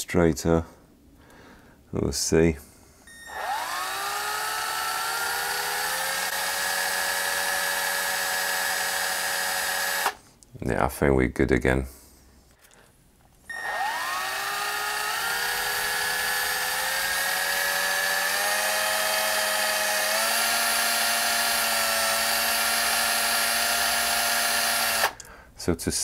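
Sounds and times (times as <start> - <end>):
electric drill whining: 3.1 - 10.2, 13.5 - 25.3.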